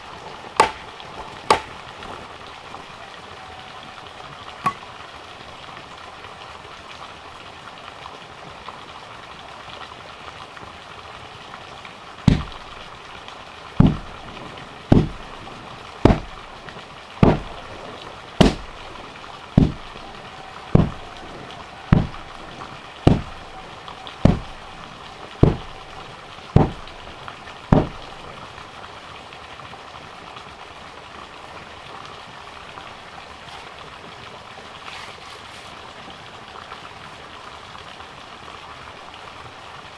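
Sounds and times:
steady hiss: 0:11.9 - 0:29.2
tamper thudding on soil: 0:12.3 - 0:12.6, 0:13.8 - 0:14.1, 0:14.9 - 0:15.2, 0:16.0 - 0:16.4, 0:17.2 - 0:17.6, 0:18.4 - 0:18.8, 0:19.6 - 0:20.0, 0:20.7 - 0:21.1, 0:21.9 - 0:22.4, 0:23.1 - 0:23.4, 0:24.2 - 0:24.6, 0:25.4 - 0:25.8, 0:26.6 - 0:27.0, 0:27.7 - 0:28.1.

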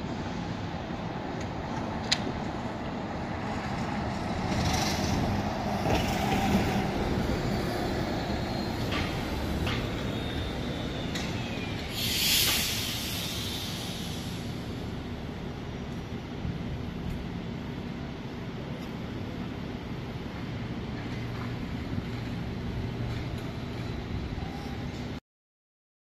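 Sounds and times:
buses passing in traffic: 0:00.0 - 0:25.2
air-brake hisses: 0:11.0 - 0:14.8.

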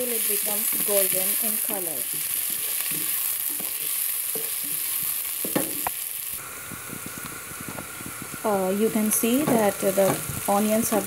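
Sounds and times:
onions sizzling in hot oil: 0:00.0 - 0:11.0
wooden spoon scraping a pot: 0:00.5 - 0:05.8.

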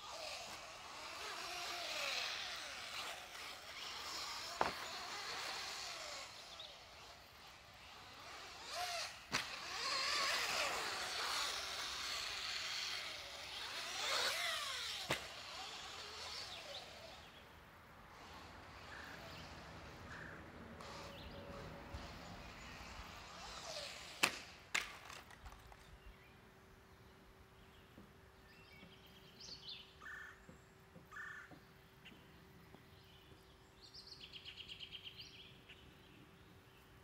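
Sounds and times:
electric buggy motor whining: 0:00.0 - 0:25.8.

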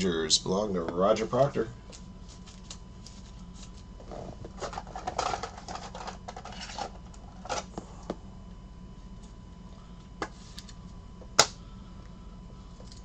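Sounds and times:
plastic sleeve rustling and scraping: 0:02.2 - 0:07.7.

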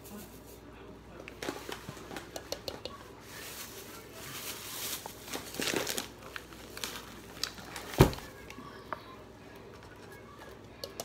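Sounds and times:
plastic spoon tapping a bowl: 0:02.3 - 0:03.0, 0:10.8 - 0:11.0
plastic bag crinkling: 0:03.1 - 0:08.6.

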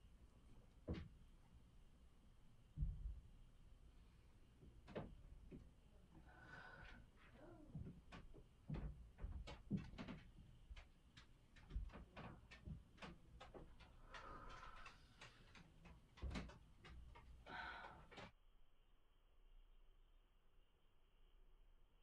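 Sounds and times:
soft knocks and rustles: 0:06.9 - 0:17.4.

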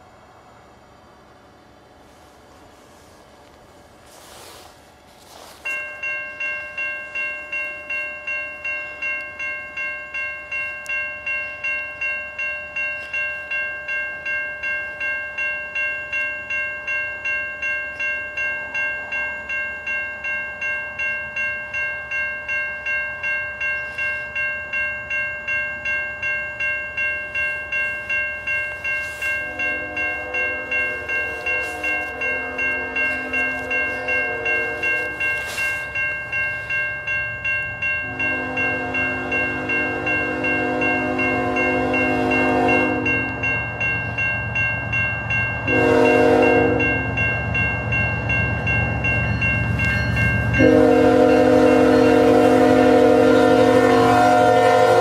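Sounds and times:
crossing bell ringing: 0:02.9 - 0:55.0
train horn blasts: 0:29.0 - 0:35.8, 0:38.0 - 0:43.4, 0:45.6 - 0:47.0, 0:50.6 - 0:55.0.

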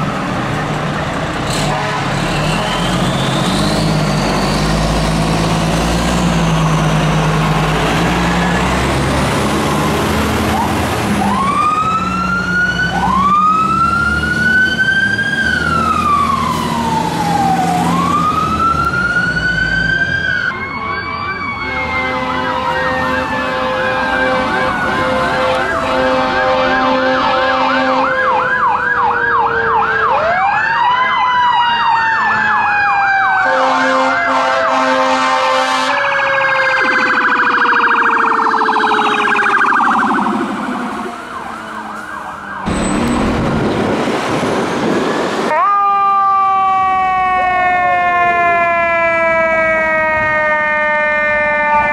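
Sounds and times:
fire truck siren wailing: 0:00.0 - 0:51.9
air horn blasts: 0:01.5 - 0:02.9, 0:21.6 - 0:28.3, 0:33.4 - 0:36.2
siren sliding down in pitch: 0:03.0 - 0:43.8, 0:45.2 - 0:51.9.

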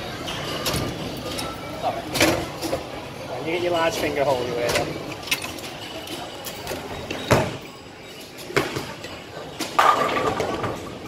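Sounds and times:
bowling alley noise: 0:04.6 - 0:11.0
bowling pins clattering: 0:09.6 - 0:11.0.

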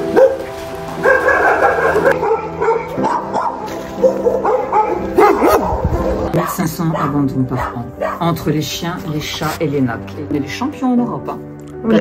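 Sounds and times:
dogs barking: 0:00.0 - 0:08.4
background music: 0:00.0 - 0:12.0.

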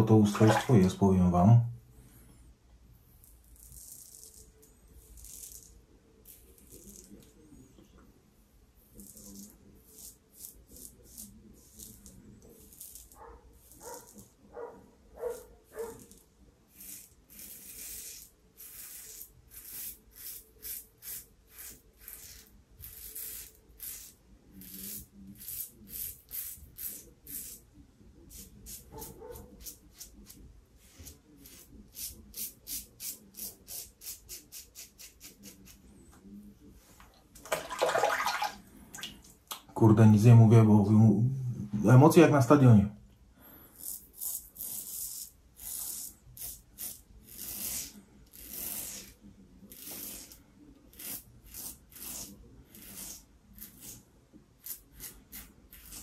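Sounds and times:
razor scraping stubble: 0:03.1 - 0:07.4, 0:08.9 - 0:27.7, 0:28.3 - 0:35.8, 0:43.7 - 0:54.0, 0:54.6 - 0:56.0.

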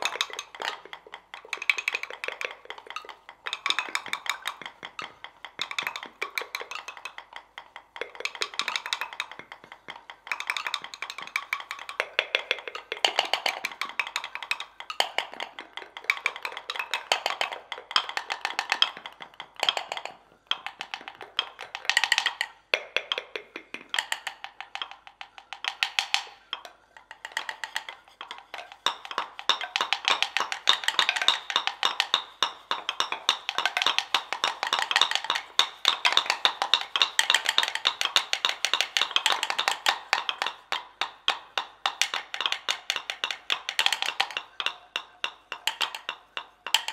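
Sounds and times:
pestles tapping mortars: 0:00.0 - 0:46.9.

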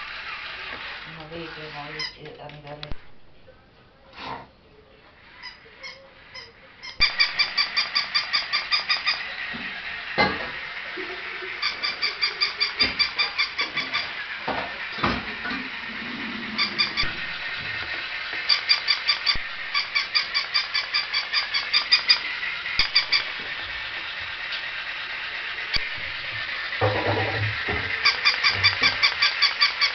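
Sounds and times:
toy dog electronic barking: 0:05.4 - 0:09.4, 0:11.5 - 0:14.3, 0:16.6 - 0:17.6, 0:18.4 - 0:23.6, 0:27.9 - 0:29.9.

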